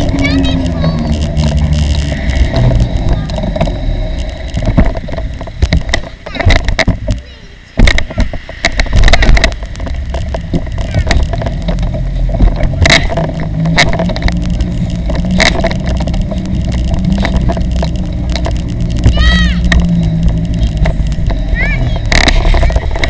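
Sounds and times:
trailer wheels rumbling: 0.0s - 23.0s
frame rattling over bumps: 8.7s - 23.0s
child calling out: 19.0s - 19.7s.

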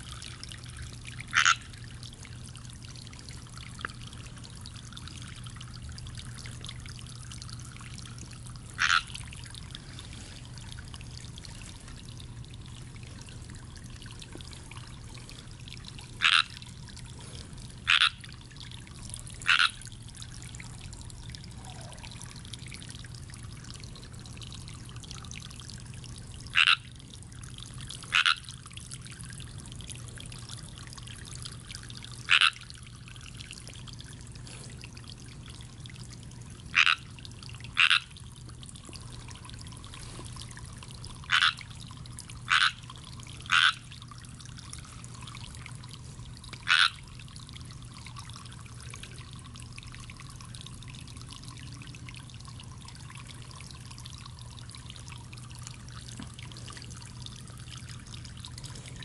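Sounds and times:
pond water trickling: 0.0s - 59.0s
frog croaking: 1.2s - 1.8s, 8.7s - 9.3s, 16.2s - 16.6s, 17.8s - 18.3s, 19.4s - 19.8s, 21.6s - 22.1s, 26.5s - 26.9s, 28.1s - 28.5s, 32.3s - 32.7s, 36.7s - 37.1s, 37.7s - 38.2s, 41.2s - 41.7s, 42.4s - 44.0s, 46.6s - 47.1s.

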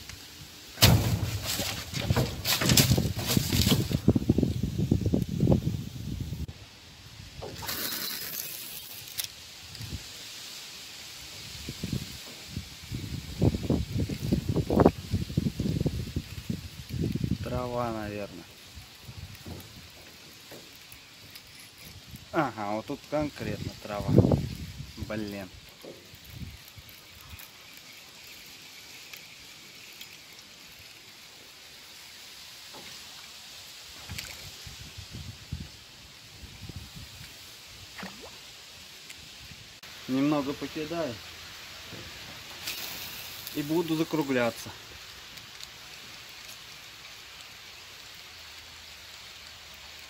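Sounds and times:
faint hiss of water: 0.0s - 50.0s
ripples lapping at boat: 37.8s - 39.2s.

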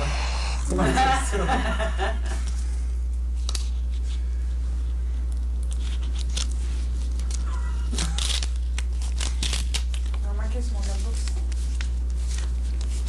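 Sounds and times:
steady low hum: 0.0s - 13.0s
paper rustling: 5.6s - 13.0s.

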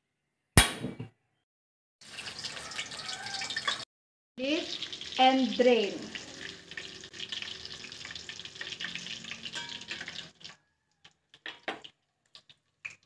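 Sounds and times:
sausages sizzling in oil: 2.0s - 3.8s, 4.4s - 13.0s.

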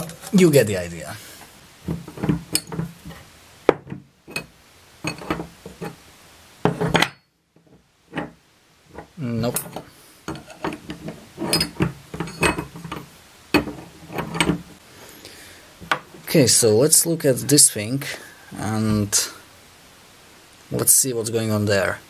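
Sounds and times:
metal clinks and knocks: 1.9s - 6.0s, 6.6s - 14.8s.

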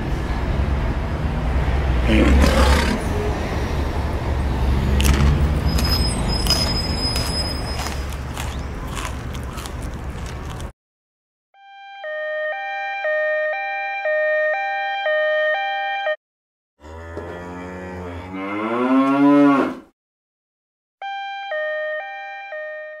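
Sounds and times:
two-tone ambulance siren: 11.6s - 16.2s, 21.0s - 23.0s
cow mooing: 16.8s - 19.9s.

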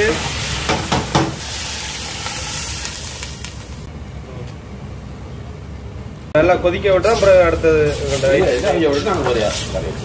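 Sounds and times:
meat sizzling in a pot: 0.0s - 3.9s, 7.1s - 10.0s.

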